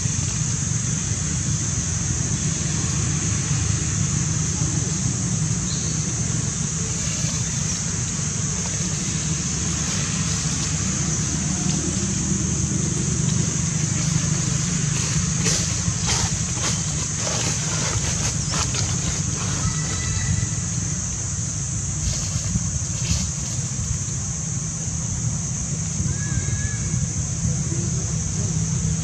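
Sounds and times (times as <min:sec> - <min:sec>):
high hiss: 0:00.0 - 0:29.0.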